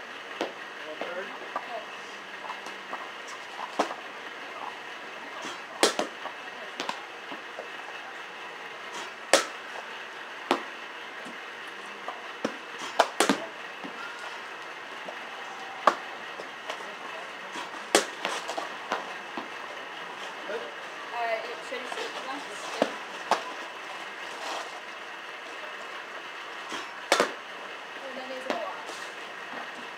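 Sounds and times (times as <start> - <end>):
bat hitting softballs: 3.6 - 4.0, 5.4 - 7.4, 9.0 - 9.8, 10.4 - 10.8, 12.0 - 14.0, 15.8 - 16.8, 17.5 - 19.5, 22.8 - 23.6, 26.7 - 27.4
balls landing: 5.4 - 6.2, 9.0 - 9.6, 10.5 - 11.4, 12.4 - 14.0, 15.8 - 16.0, 17.6 - 19.5, 26.7 - 27.4.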